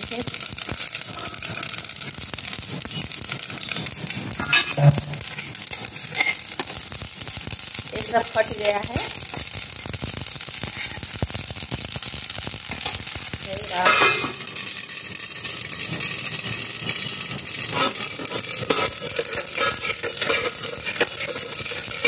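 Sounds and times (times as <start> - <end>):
seeds popping in a pan: 0.0 - 22.0
metal lid clatter: 4.4 - 5.1, 13.8 - 14.7, 16.9 - 22.0.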